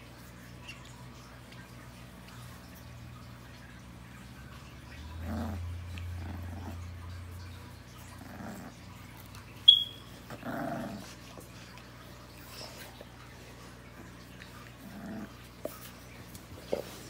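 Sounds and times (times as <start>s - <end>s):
puppies growling: 4.2s - 9.5s, 10.1s - 17.0s
puppy high squeak: 9.7s - 10.1s.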